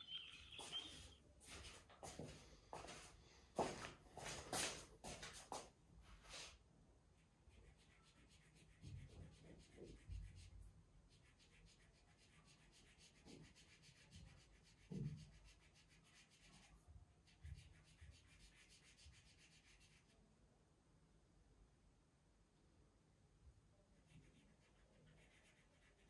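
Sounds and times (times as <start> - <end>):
marker scratching on wall: 7.4 - 20.2, 24.0 - 26.0.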